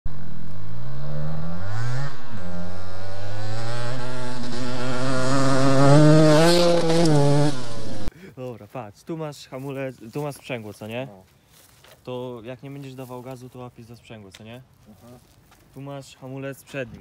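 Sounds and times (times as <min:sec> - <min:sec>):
two-stroke engine revving: 0:00.6 - 0:08.1.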